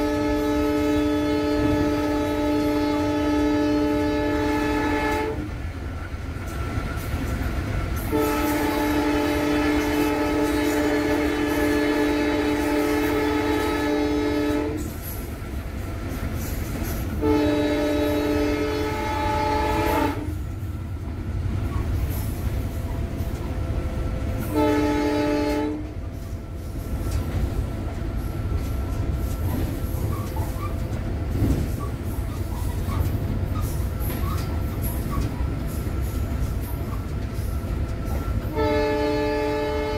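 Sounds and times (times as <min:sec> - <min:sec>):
locomotive air horn blasts: 0:00.0 - 0:05.6, 0:08.0 - 0:15.0, 0:17.0 - 0:20.5, 0:24.4 - 0:26.0, 0:38.4 - 0:39.9
locomotive rumbling at speed: 0:01.1 - 0:39.9
wheels clattering over rail joints: 0:26.9 - 0:38.4.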